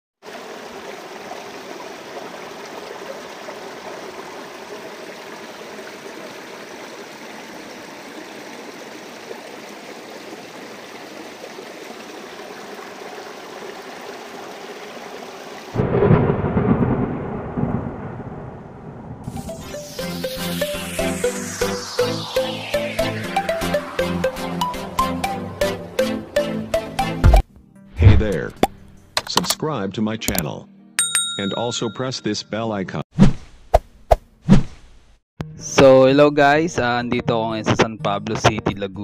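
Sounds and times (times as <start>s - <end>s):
rain hiss: 0.2s - 18.5s, 19.2s - 24.0s
thunderclap rumbling: 15.8s - 19.6s.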